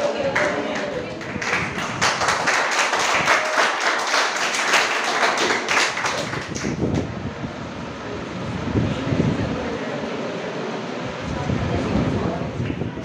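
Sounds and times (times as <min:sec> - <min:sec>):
group of people clapping: 0:00.0 - 0:07.1.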